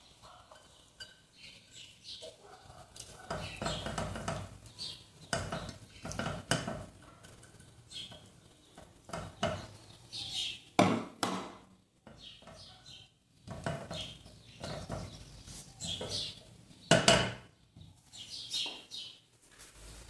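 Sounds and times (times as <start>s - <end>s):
spatula scraping and tapping a pot: 0.4s - 9.9s, 12.0s - 12.8s, 13.4s - 17.9s.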